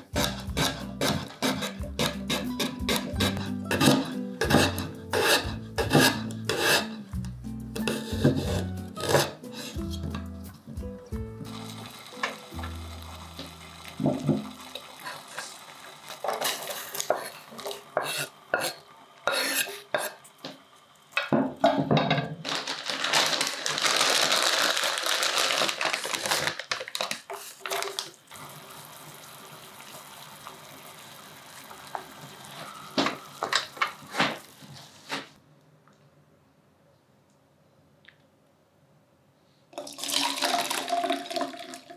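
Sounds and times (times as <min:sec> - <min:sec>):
saucepan and utensils clattering: 0:00.0 - 0:07.0.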